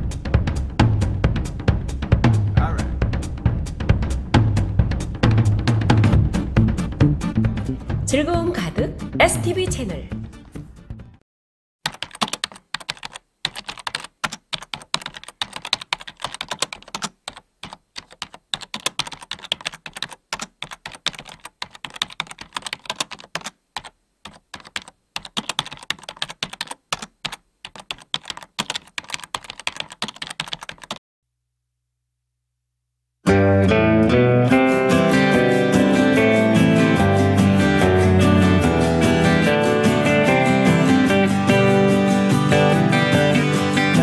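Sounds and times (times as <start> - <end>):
keyboard typing: 11.8 - 31.0.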